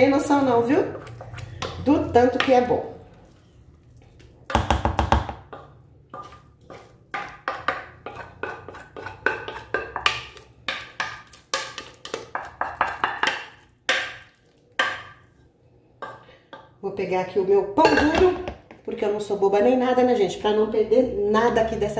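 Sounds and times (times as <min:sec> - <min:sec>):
wooden spoon scraping metal pot: 0:05.3 - 0:15.4.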